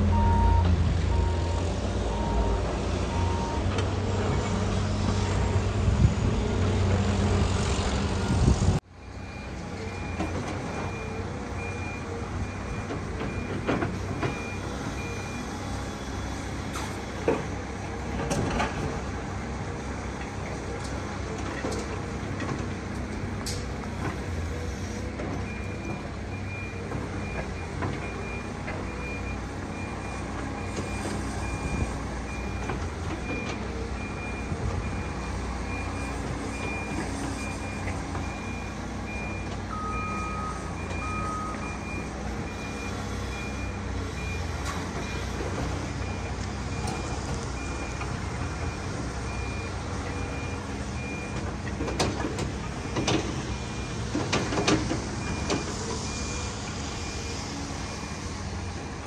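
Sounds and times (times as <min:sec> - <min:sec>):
reversing alarm beeping: 0:00.0 - 0:03.8, 0:25.5 - 0:45.3
diesel engine running: 0:00.0 - 0:59.0.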